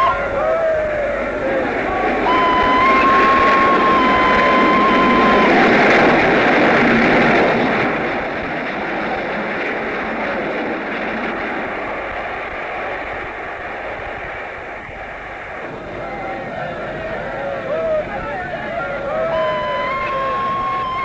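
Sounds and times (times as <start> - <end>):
steam whistle: 0.0 - 7.5, 16.0 - 21.0
steam locomotive rushing: 0.0 - 21.0.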